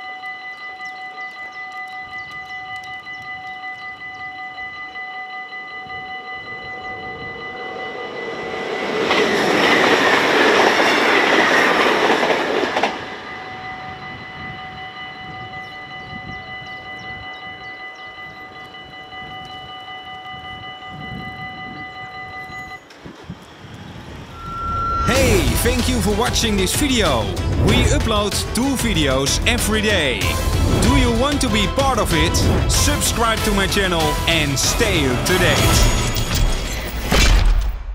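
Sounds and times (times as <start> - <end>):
level crossing bells ringing: 0.0 - 23.0, 24.2 - 37.0
train rushing past: 6.1 - 16.0, 22.6 - 36.7.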